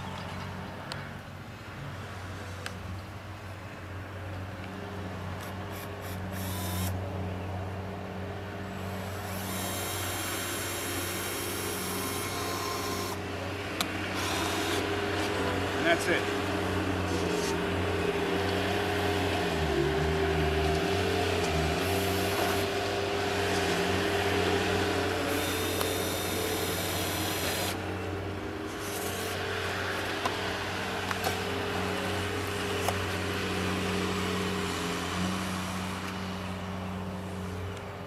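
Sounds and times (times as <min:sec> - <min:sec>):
low motor hum: 0:04.6 - 0:38.0
cordless drill whining: 0:05.7 - 0:07.0, 0:08.8 - 0:13.2, 0:14.1 - 0:14.9, 0:19.7 - 0:22.9, 0:24.9 - 0:27.8, 0:28.7 - 0:30.1.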